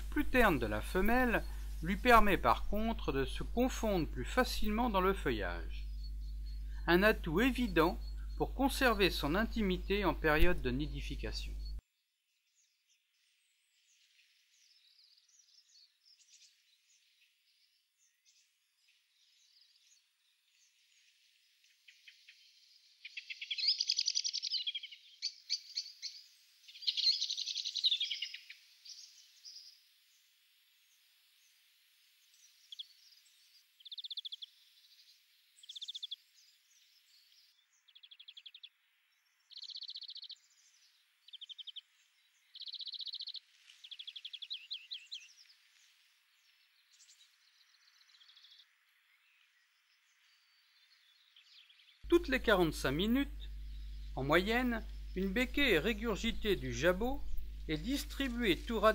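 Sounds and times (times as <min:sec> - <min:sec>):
nestlings begging chirping: 0:00.0 - 0:11.8, 0:23.0 - 0:29.7, 0:33.8 - 0:34.5, 0:35.6 - 0:36.2, 0:39.5 - 0:45.3, 0:52.1 - 0:58.9.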